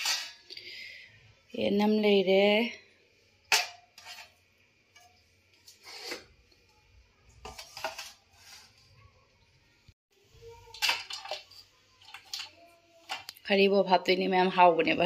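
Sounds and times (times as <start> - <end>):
metal plates and bowls clinking: 0.0 - 0.6, 3.4 - 6.4, 7.4 - 8.8, 10.7 - 13.3.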